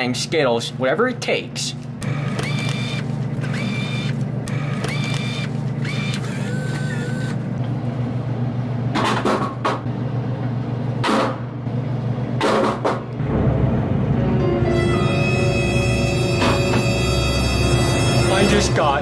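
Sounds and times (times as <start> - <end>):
vending machine humming: 0.0 - 19.0
bill acceptor whining: 2.0 - 7.6.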